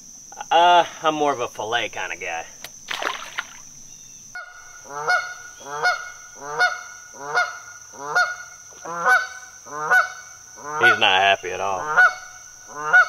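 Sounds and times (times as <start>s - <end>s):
goose honking: 4.4s - 13.0s.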